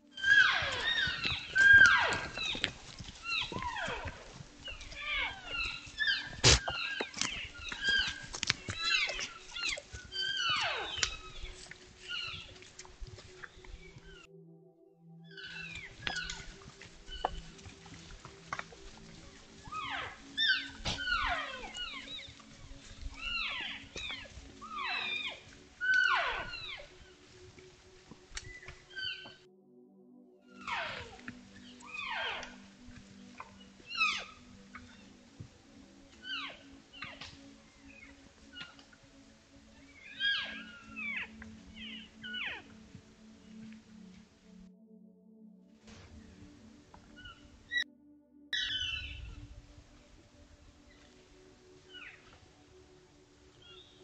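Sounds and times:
elk mews and chirps: 0.1 - 12.6, 15.3 - 27.2, 28.4 - 29.5, 30.6 - 32.7, 33.4 - 35.0, 36.2 - 37.3, 37.9 - 39.0, 39.7 - 42.7.

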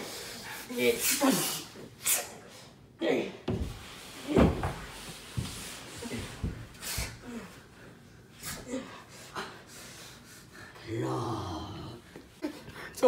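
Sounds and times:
person breathing hard: 6.1 - 13.0
person grunting: 10.8 - 12.0.

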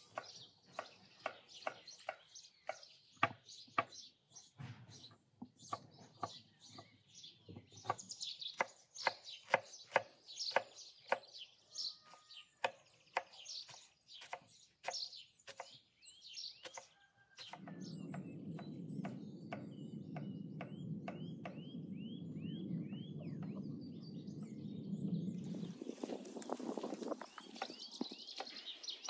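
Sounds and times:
small birds chirping: 0.0 - 29.0
knife chopping on wooden board: 7.9 - 11.2, 12.6 - 15.8, 16.6 - 17.8
steady low rumble: 17.6 - 27.1.

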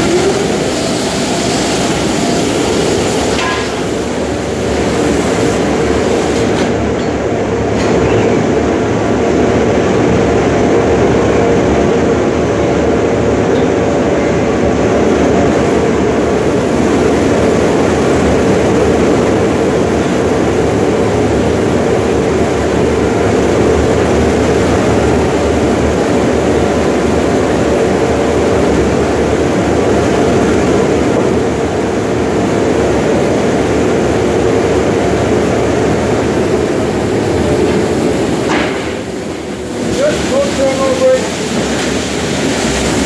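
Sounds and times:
water spraying: 0.0 - 6.8, 15.4 - 43.0
steady machine hum: 0.0 - 43.0.

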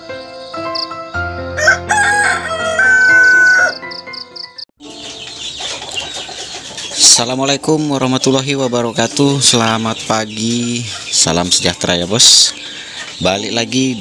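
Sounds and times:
cricket-like chirping: 0.0 - 1.0, 3.8 - 4.6
soft music: 0.0 - 14.0
rooster crowing: 1.5 - 4.0.

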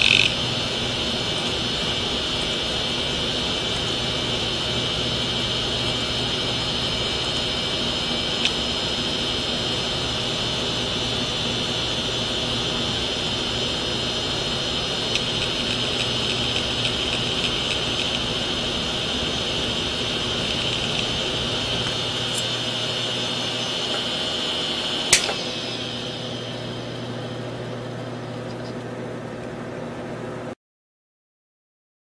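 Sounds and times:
hard disk head clicking: 0.0 - 0.4, 15.0 - 18.4
hard disk drive whine: 0.0 - 30.6.

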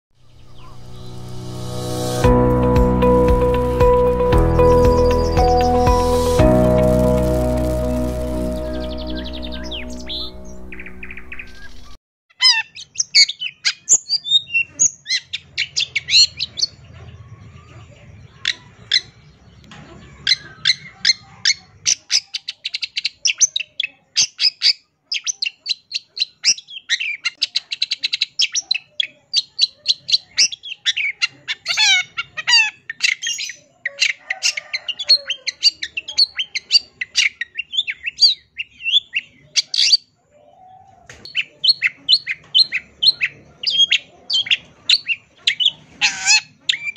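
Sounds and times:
shrike singing: 0.2 - 12.0.

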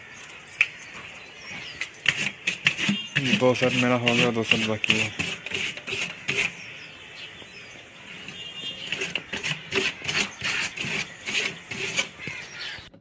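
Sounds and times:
hand scraping glue on surface: 2.0 - 6.6, 8.2 - 12.5.

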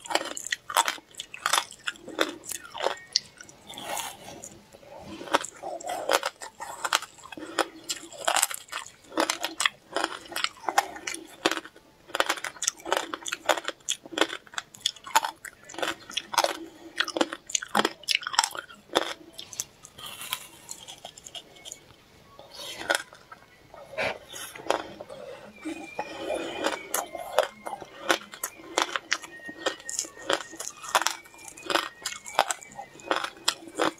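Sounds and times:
person crunching ice: 0.0 - 3.0, 25.8 - 33.9.

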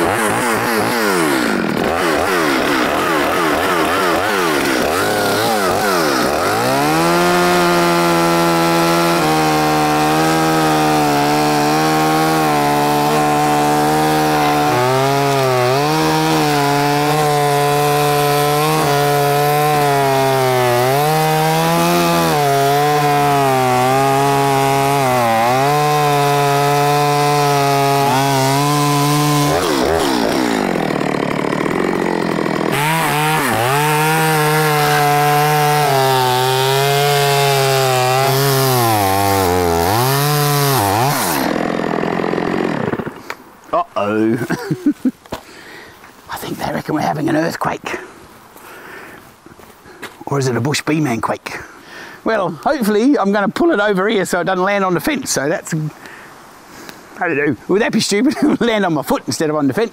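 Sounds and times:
chainsaw cutting wood: 0.0 - 43.6, 44.2 - 45.9.

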